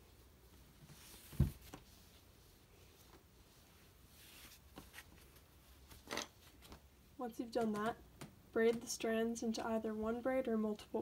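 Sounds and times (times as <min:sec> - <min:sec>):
soft taps and rustles: 0:00.5 - 0:02.3, 0:02.9 - 0:07.0, 0:07.6 - 0:08.9.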